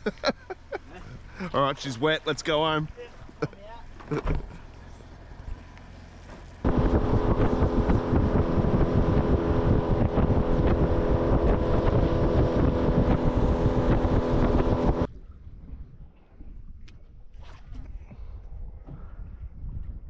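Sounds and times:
outboard motor running: 0.4 - 15.1
wind buffeting microphone: 6.6 - 20.0.

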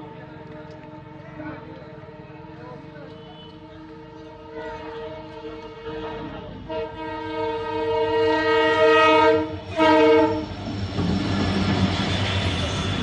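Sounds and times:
locomotive passing rumble: 0.0 - 13.0
locomotive horn blasts: 3.1 - 10.5.

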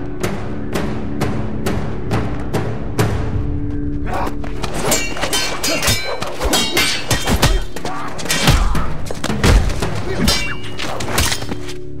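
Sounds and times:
music: 0.0 - 12.0
voices: 5.4 - 9.0.

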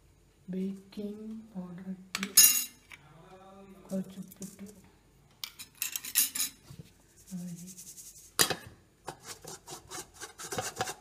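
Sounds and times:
sieve scraping steel bowl: 9.1 - 11.0.

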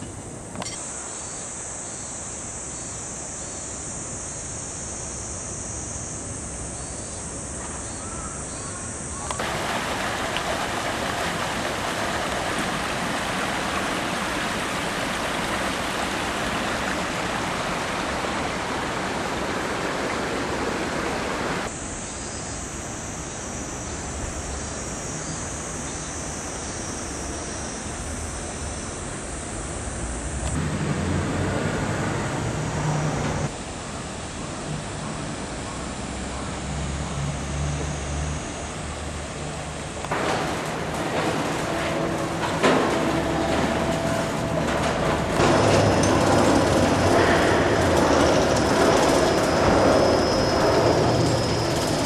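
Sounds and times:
high-pitched outdoor hiss: 0.0 - 52.0
stream running over rocks: 9.4 - 21.7.

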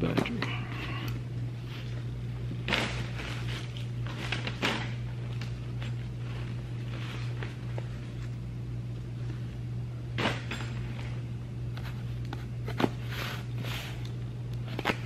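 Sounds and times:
steady low hum: 0.0 - 15.0
packaging rustling: 2.6 - 8.4.

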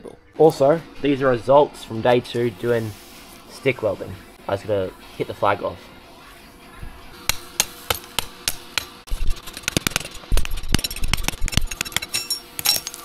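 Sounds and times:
chipping hammer tapping metal: 7.2 - 13.0.

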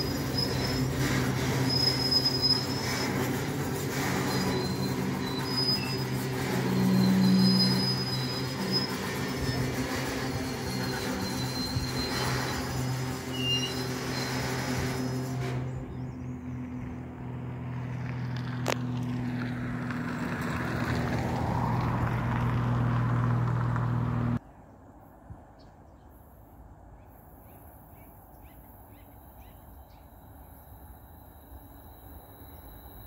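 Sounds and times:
freight train rumbling past: 0.0 - 24.4.

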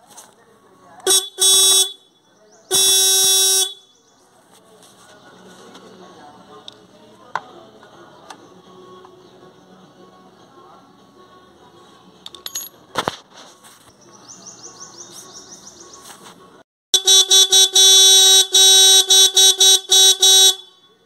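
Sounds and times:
motorcycle horn beeping: 1.0 - 4.0, 17.0 - 21.0.

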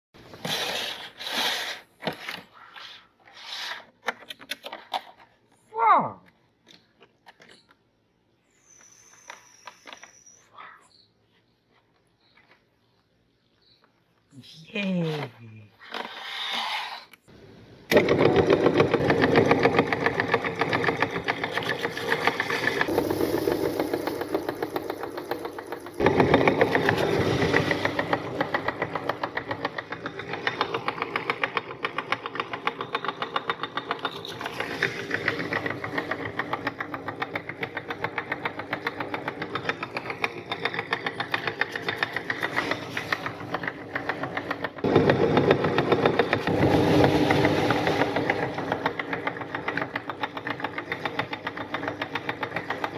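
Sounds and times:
meat grinder grinding cookies: 17.9 - 52.9.

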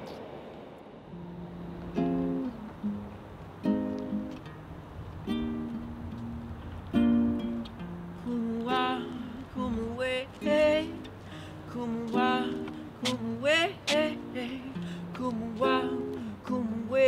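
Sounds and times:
classical guitar playing: 1.1 - 17.0
person singing wordlessly: 8.2 - 17.0.

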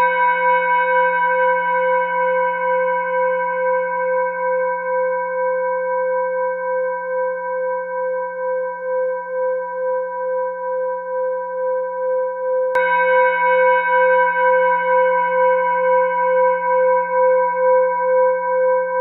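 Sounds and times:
singing bowl ringing: 0.0 - 6.0, 12.7 - 19.0.

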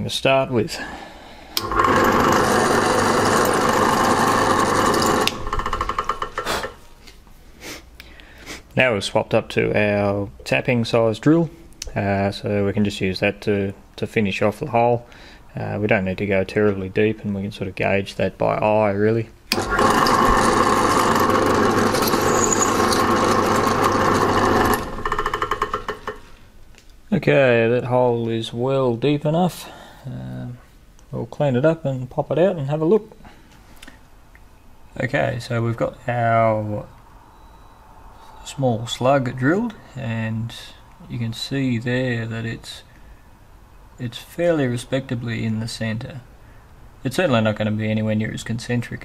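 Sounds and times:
motor winding down with pulsing whir: 1.6 - 6.2, 19.5 - 26.2
drill press running: 1.6 - 6.8, 19.5 - 26.3.

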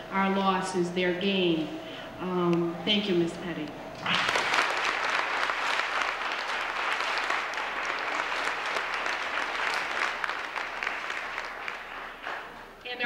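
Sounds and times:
audience applauding: 4.0 - 12.8.

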